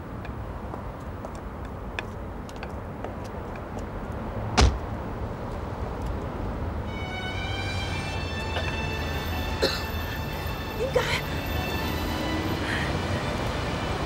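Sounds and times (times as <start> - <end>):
street traffic hum: 0.0 - 14.0
car door shutting: 4.6 - 4.9.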